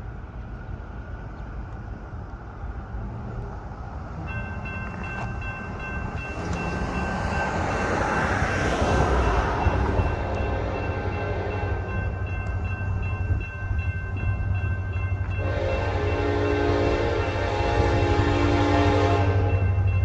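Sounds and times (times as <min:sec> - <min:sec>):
train rumble: 0:00.0 - 0:20.0
crossing warning bell ringing: 0:04.1 - 0:20.0.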